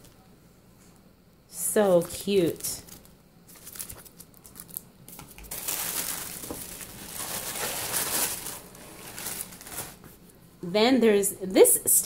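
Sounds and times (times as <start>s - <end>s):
tissue paper crinkling: 2.5s - 10.2s.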